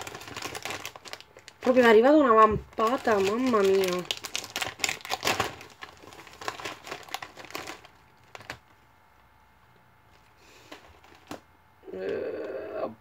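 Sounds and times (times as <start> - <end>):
plastic bag crinkling: 0.0 - 8.9, 10.1 - 11.4.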